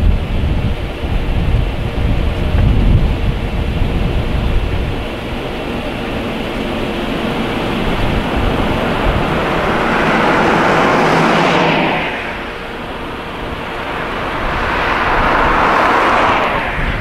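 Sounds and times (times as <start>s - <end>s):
low rumble: 0.0s - 17.0s
truck driving past: 4.1s - 17.0s.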